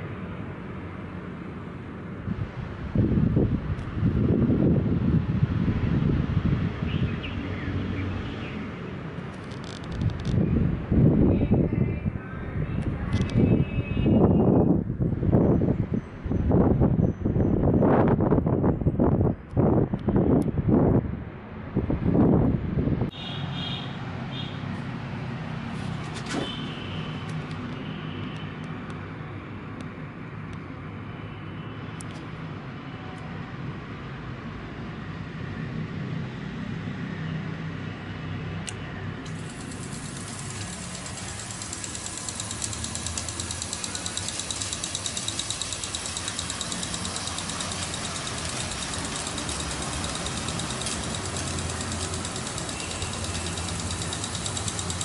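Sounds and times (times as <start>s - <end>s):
sharp click: 38.6s - 55.0s
water spraying from sprinkler: 39.3s - 55.0s.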